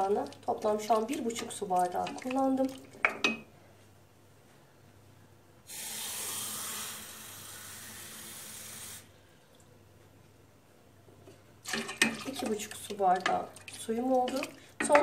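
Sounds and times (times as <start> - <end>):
tap water running into glass: 11.7 - 15.0.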